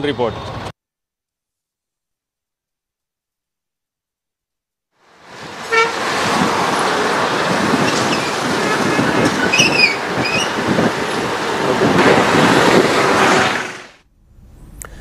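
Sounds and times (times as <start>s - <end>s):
road traffic noise: 0.0s - 0.7s, 5.0s - 15.0s
vehicle horn toot: 5.7s - 6.0s.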